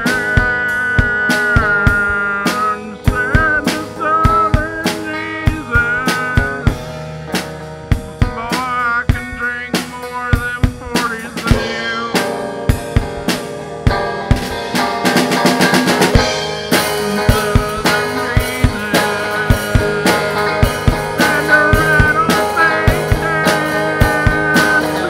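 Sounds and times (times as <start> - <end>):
drum kit beat: 0.0 - 25.0
wavering lead melody: 11.4 - 25.0.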